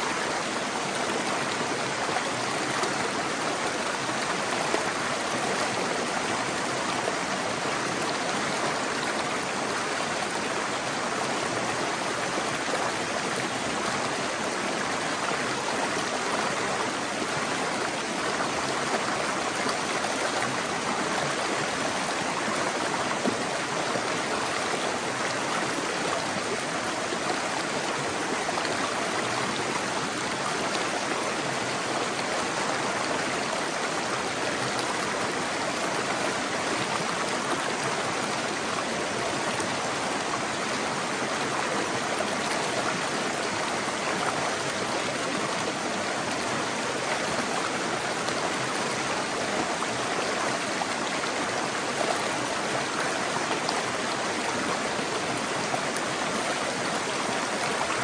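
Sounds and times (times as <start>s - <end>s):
creek water rushing over rocks: 0.0s - 58.0s.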